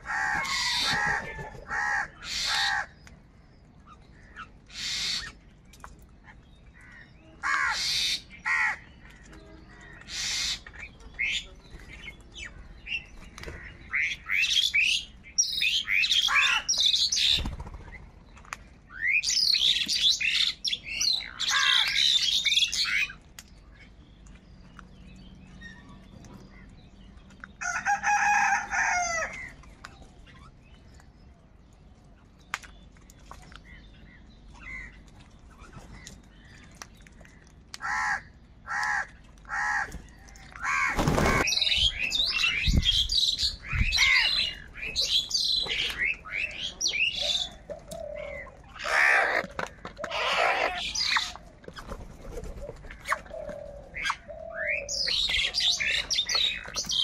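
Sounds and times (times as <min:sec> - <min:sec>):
crows cawing: 0:00.0 - 0:03.0, 0:06.8 - 0:08.9, 0:21.4 - 0:22.1, 0:37.8 - 0:39.9, 0:40.6 - 0:41.5, 0:48.8 - 0:51.1
higher chirpy bird calls: 0:00.0 - 0:03.0, 0:03.8 - 0:05.5, 0:06.2 - 0:18.1, 0:18.9 - 0:23.2, 0:37.8 - 0:57.0.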